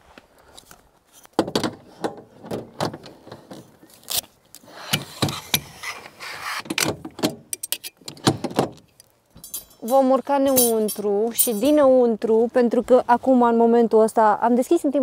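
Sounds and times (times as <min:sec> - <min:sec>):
ladder sections clacking: 0:09.4 - 0:11.8.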